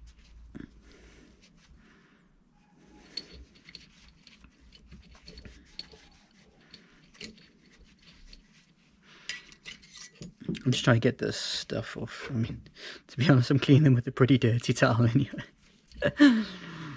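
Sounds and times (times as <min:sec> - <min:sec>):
cloth rag rustling: 0:00.0 - 0:01.8, 0:02.9 - 0:11.0.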